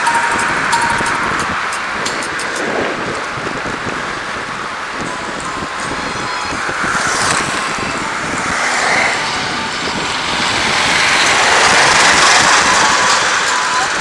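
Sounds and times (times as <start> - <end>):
road traffic passing: 0.0 - 14.0
wind on microphone: 0.0 - 14.0.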